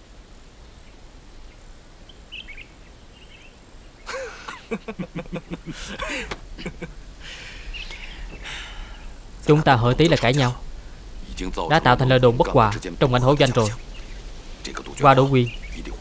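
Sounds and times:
bird chirp: 0.6s - 16.0s
man laughing: 4.1s - 7.7s.

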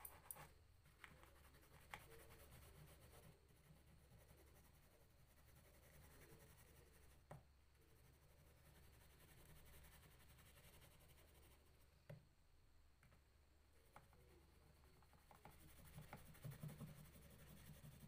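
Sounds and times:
crayon scratching on paper: 1.2s - 7.2s, 7.8s - 11.7s, 15.1s - 18.0s.

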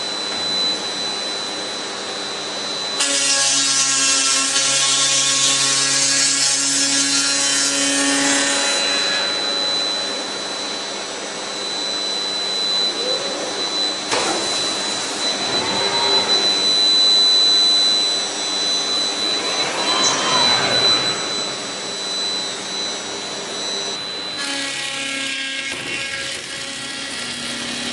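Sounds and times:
spindle high whine: 0.0s - 3.2s, 8.5s - 25.0s.

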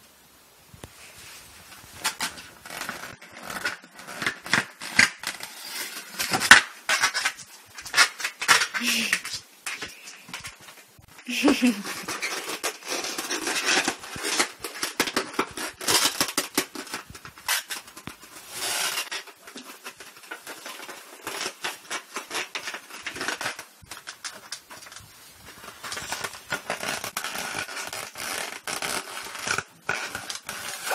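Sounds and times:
dog gnawing rubber balloon: 2.0s - 5.5s, 11.6s - 30.9s.

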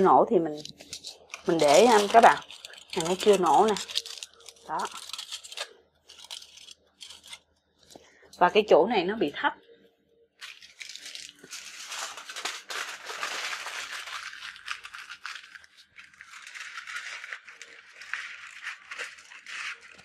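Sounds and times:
aluminium foil crinkling: 0.4s - 8.5s, 10.4s - 20.0s
pork sizzling and crackling: 0.7s - 7.4s.

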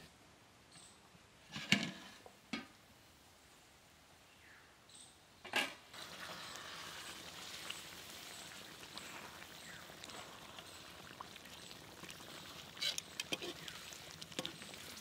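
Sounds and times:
curry bubbling in a wok: 5.9s - 15.0s
metal spatula scraping: 12.8s - 13.7s.

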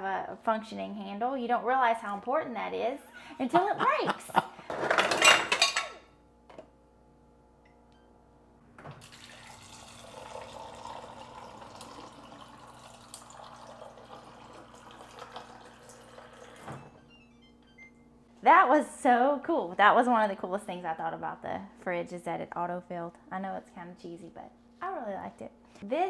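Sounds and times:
water pouring into metal tumbler: 9.0s - 16.6s.

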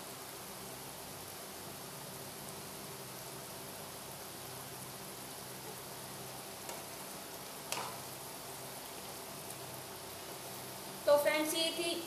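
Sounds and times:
food sizzling in a pan: 0.0s - 12.0s
wooden spatula knocking on pan: 7.7s - 8.0s.

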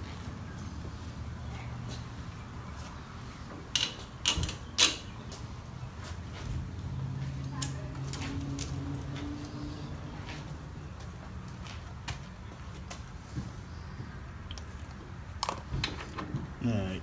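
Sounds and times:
metal parts clanking: 3.7s - 5.1s.

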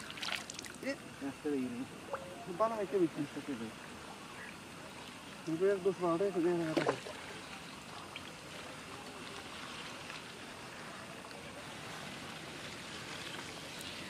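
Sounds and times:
water trickling and lapping: 0.0s - 14.0s.

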